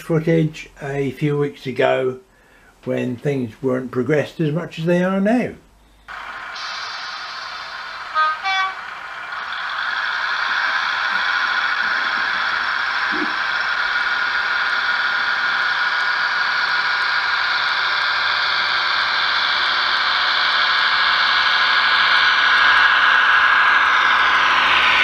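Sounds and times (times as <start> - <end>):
diesel engine sound from small speaker: 6.0 - 25.0
model train wheels humming on track: 6.0 - 25.0.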